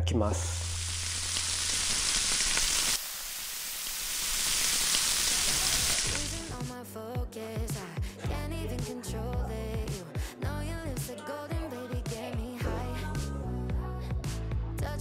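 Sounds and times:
beef sizzling on grill: 0:00.5 - 0:06.6
background music: 0:05.9 - 0:15.0.

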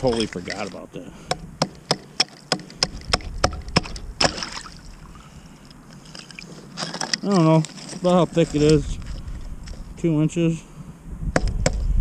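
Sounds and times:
ice crunching: 0:00.0 - 0:00.9, 0:05.9 - 0:10.0
hatchet chopping ice: 0:01.3 - 0:04.6.

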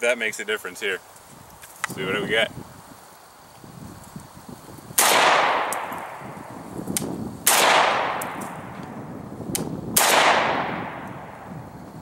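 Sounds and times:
gunshots with echo: 0:05.0 - 0:06.1, 0:07.5 - 0:08.4, 0:10.0 - 0:11.2.

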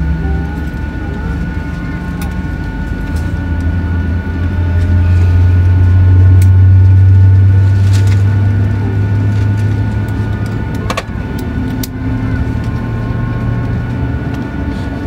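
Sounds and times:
jet engines humming and whining: 0:00.0 - 0:15.0.

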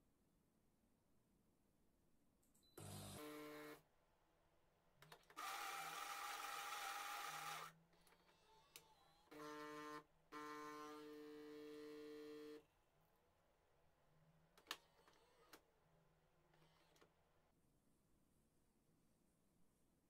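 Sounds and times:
coffee grinder whirring: 0:05.3 - 0:07.7.

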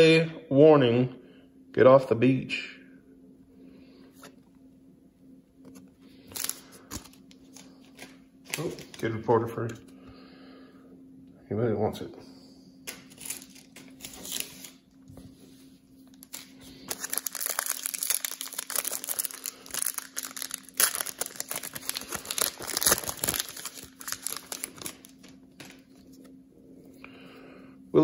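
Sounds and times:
plastic wrapper tearing and crinkling: 0:06.2 - 0:09.2, 0:12.9 - 0:14.9, 0:16.1 - 0:25.9.

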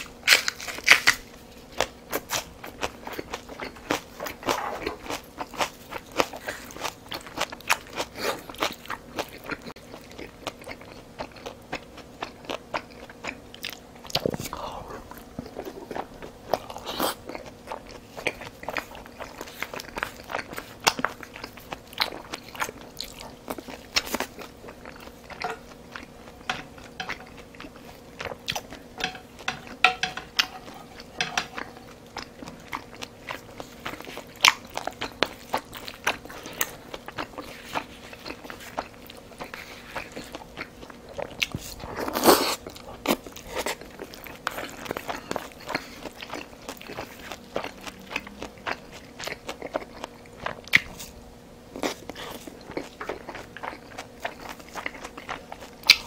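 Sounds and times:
chewing and biting food: 0:00.0 - 0:56.0
chopsticks clicking on bowl: 0:29.0 - 0:31.8.

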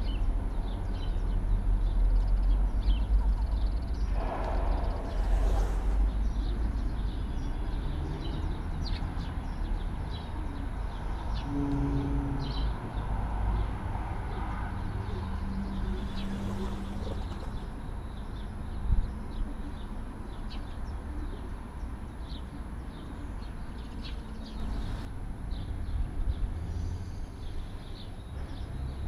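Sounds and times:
small birds chirping: 0:00.0 - 0:29.0
distant heavy machinery rumble: 0:03.9 - 0:07.2
low hum: 0:03.9 - 0:07.5.

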